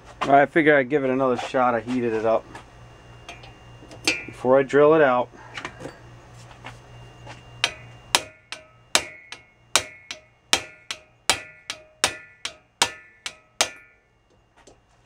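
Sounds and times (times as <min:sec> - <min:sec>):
low hum: 0:02.1 - 0:15.0
hammer blows on metal: 0:07.6 - 0:14.1.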